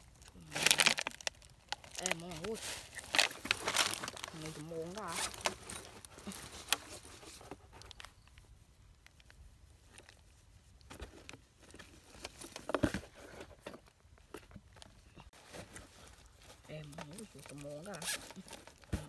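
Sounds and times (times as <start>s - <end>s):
cloth rustling in cardboard box: 0.0s - 8.1s.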